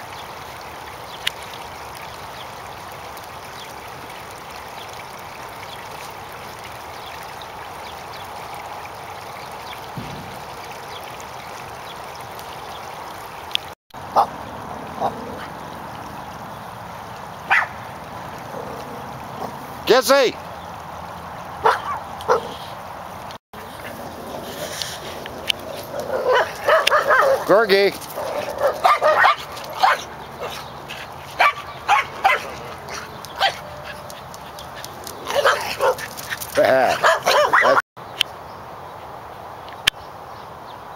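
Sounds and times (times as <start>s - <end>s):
trickle of running water: 0.0s - 40.9s
dog yipping barks: 17.5s - 17.8s, 21.6s - 22.5s, 26.0s - 27.5s, 28.2s - 30.6s, 31.4s - 34.0s, 35.3s - 36.0s, 37.0s - 37.8s.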